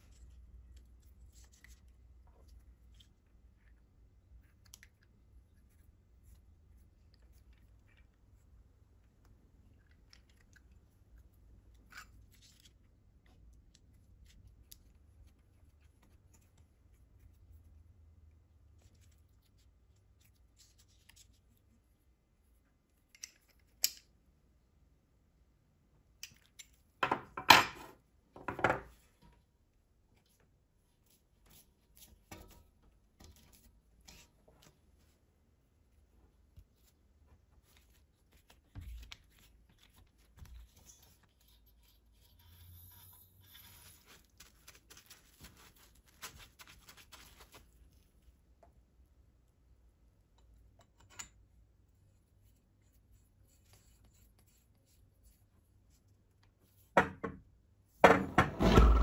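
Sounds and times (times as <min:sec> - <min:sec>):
tools clattering on wooden bench: 0:27.0 - 0:28.9
tape crinkling: 0:43.9 - 0:48.0.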